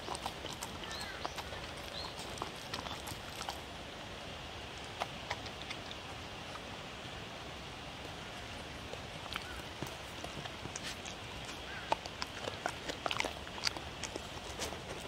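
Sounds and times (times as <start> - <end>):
sharp crunches and mouth clicks: 0.0 - 3.8, 4.7 - 6.7, 8.0 - 15.0
dog chewing food: 0.0 - 4.1, 4.7 - 6.7, 8.0 - 15.0
steady outdoor hiss: 0.0 - 15.0.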